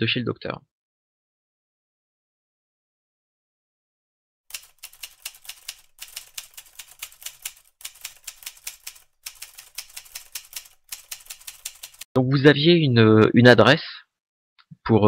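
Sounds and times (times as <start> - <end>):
typewriter keys clacking: 4.5 - 12.1.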